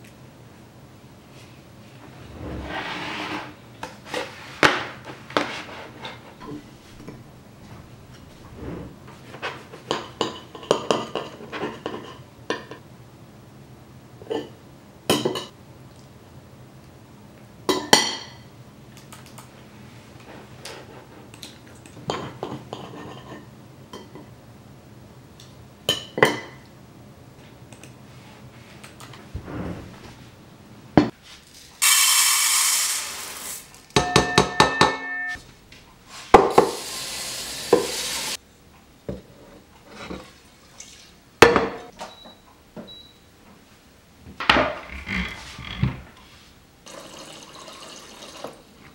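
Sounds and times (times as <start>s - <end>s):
rushing noise: 2.0s - 3.4s
ringing dish clinks: 34.0s - 35.4s.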